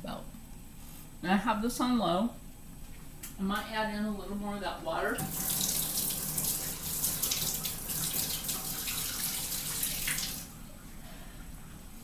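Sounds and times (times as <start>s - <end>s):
faucet running into sink: 5.2s - 10.5s.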